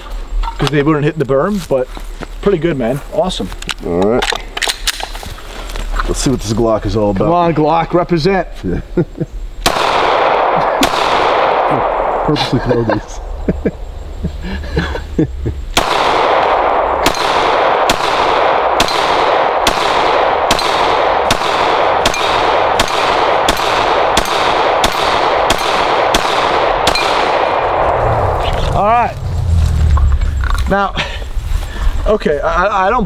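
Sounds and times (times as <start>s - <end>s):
pistol shots: 9.6s - 12.3s, 15.7s - 28.4s.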